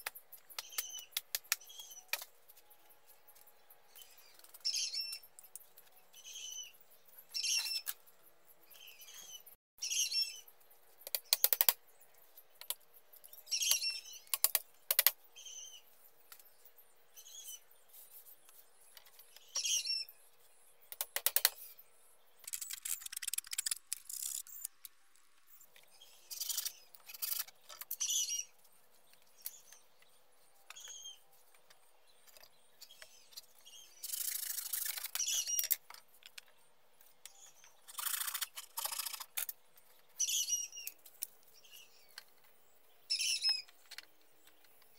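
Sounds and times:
small bird chirping: 0.0s - 44.9s.

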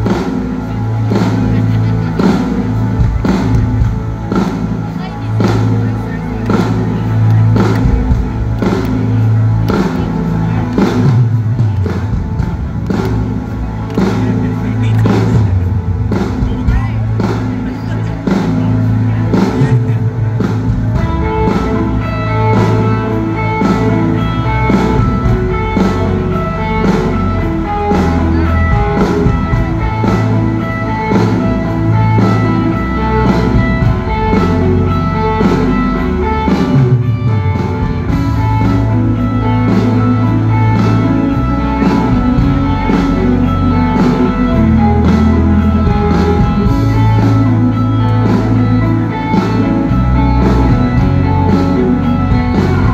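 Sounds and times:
bass guitar: 0.0s - 52.9s
drum-kit beat: 0.0s - 52.9s
electric guitar: 0.0s - 52.9s.

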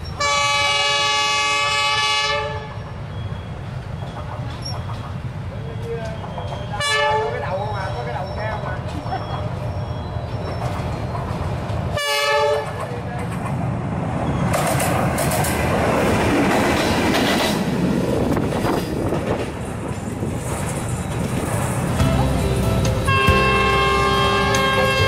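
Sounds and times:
locomotive horn blast: 0.2s - 2.8s, 6.8s - 7.4s, 12.0s - 12.8s, 22.0s - 25.0s
wheels rattling on rails: 3.1s - 25.0s
locomotive engine rumble: 14.5s - 25.0s.

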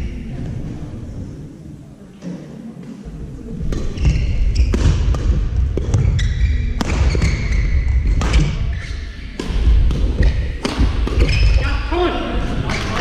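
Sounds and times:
shoe squeaks: 3.8s - 5.0s, 5.9s - 9.4s, 11.2s - 11.7s
racket hitting shuttlecock: 6.8s - 7.4s, 8.1s - 11.4s.

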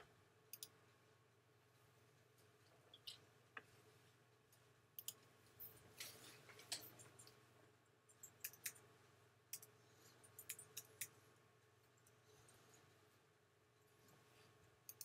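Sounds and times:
low steady hum: 0.0s - 15.0s
computer mouse clicking: 0.5s - 0.8s, 5.0s - 5.3s, 8.1s - 8.9s, 9.5s - 11.2s.

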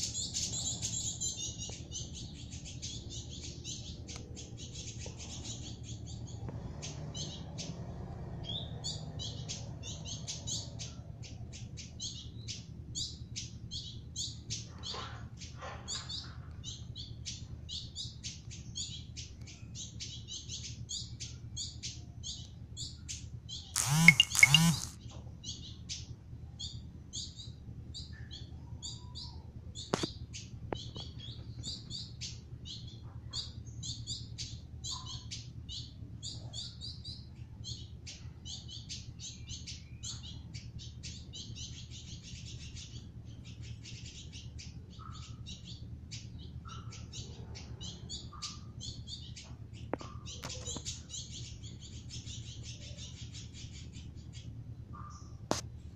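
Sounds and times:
bird chirping and trilling: 23.7s - 25.0s.

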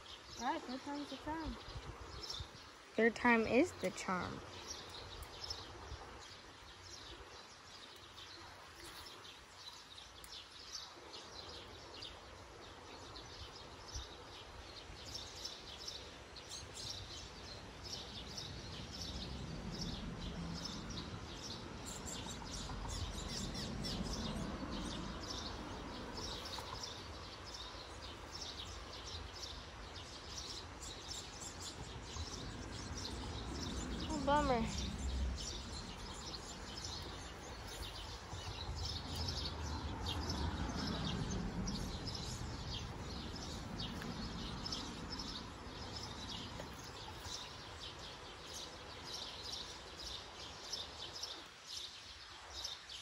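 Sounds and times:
outdoor background noise: 0.0s - 53.0s
small birds chirping: 0.0s - 53.0s
low rumble: 32.1s - 46.3s.

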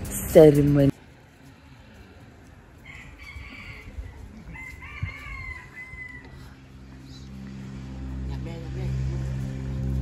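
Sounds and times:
rooster crowing: 2.8s - 6.7s.

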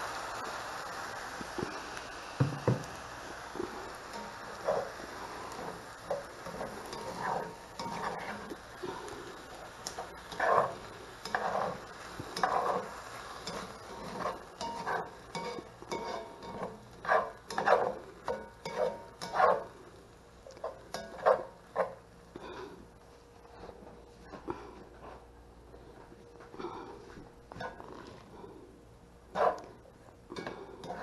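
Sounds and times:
light sizzle of frying: 0.0s - 31.0s
utensil scraping skillet: 2.4s - 19.8s, 20.5s - 22.0s, 30.4s - 31.0s.

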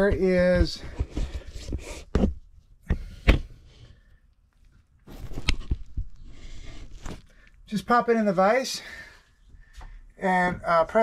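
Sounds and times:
shuffling rustling noise: 5.0s - 7.5s.

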